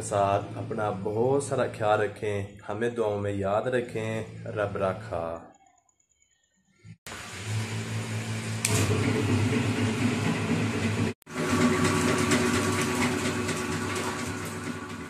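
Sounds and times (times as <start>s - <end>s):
water pump motor hum: 7.1s - 15.0s.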